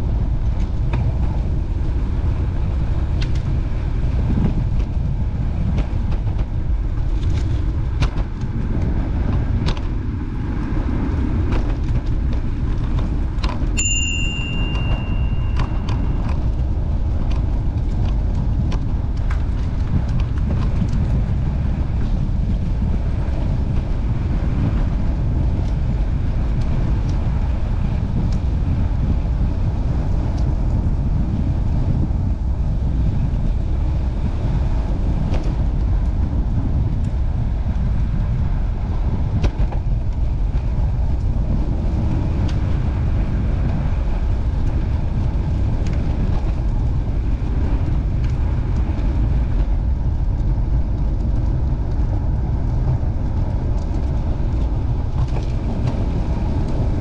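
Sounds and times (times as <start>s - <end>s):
wind rumble on microphone: 0.0s - 57.0s
bicycle bell ringing: 13.8s - 16.3s.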